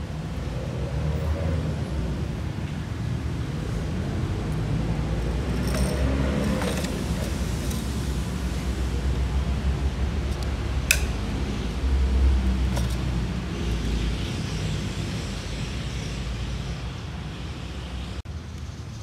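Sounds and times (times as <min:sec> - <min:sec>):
low rumble of road traffic: 0:00.0 - 0:19.0
plastic parts clicking: 0:10.3 - 0:11.2.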